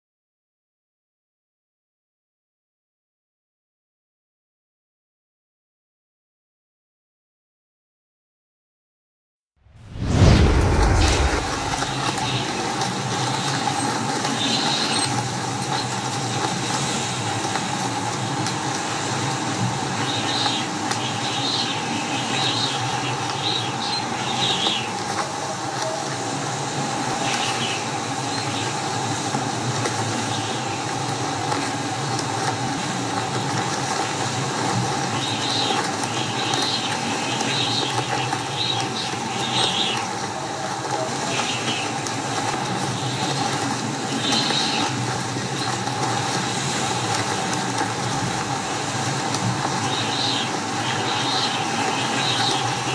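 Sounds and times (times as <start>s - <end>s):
storm wind: 9.7s - 13.4s.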